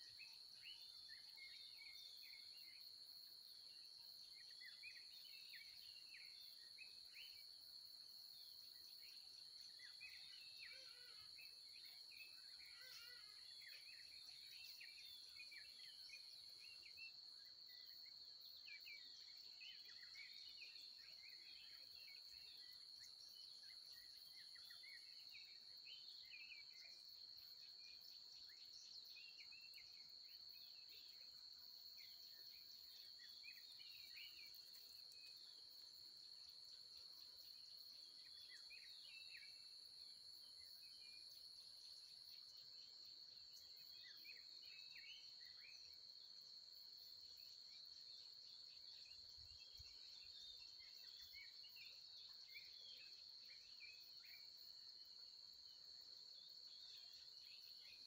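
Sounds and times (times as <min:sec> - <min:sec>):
high-pitched insect trill: 0:09.6 - 0:11.6, 0:12.4 - 0:15.3.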